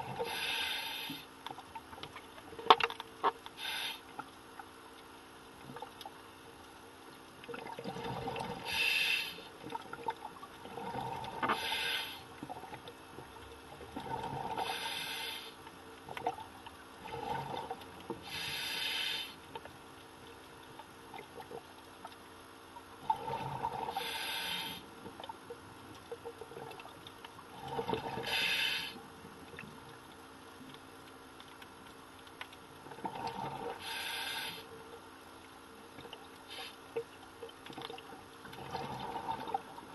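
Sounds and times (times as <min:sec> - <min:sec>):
regulator inhale hiss: 0:00.1 - 0:01.4, 0:03.6 - 0:04.2, 0:08.6 - 0:09.5, 0:11.5 - 0:12.3, 0:14.6 - 0:15.6, 0:18.2 - 0:19.4, 0:23.9 - 0:24.9, 0:28.2 - 0:29.1, 0:33.7 - 0:34.8, 0:36.5 - 0:36.9
exhaled bubbles burbling underwater: 0:07.4 - 0:08.8, 0:09.7 - 0:11.8, 0:12.4 - 0:14.8, 0:23.0 - 0:24.1, 0:26.2 - 0:28.6, 0:32.8 - 0:33.8, 0:37.0 - 0:39.9.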